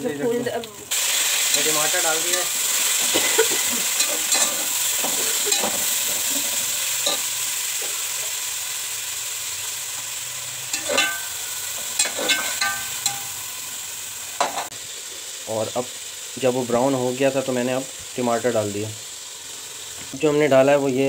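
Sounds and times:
tomatoes sizzling in hot oil: 0:00.0 - 0:21.0
metal spatula scraping a pot: 0:03.9 - 0:07.4, 0:10.7 - 0:13.3.

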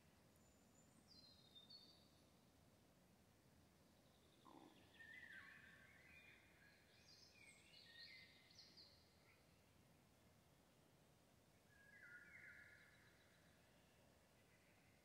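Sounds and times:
faint whistled bird song: 0:00.0 - 0:02.4, 0:03.8 - 0:09.7, 0:11.5 - 0:15.0.

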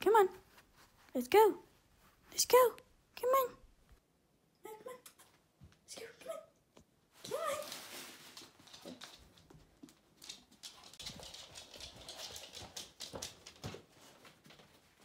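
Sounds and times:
dog claws clicking on wooden floor: 0:08.4 - 0:13.9.

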